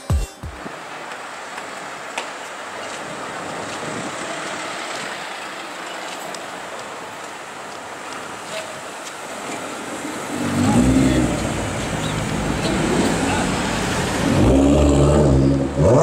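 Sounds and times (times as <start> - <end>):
city street traffic: 0.0 - 16.0.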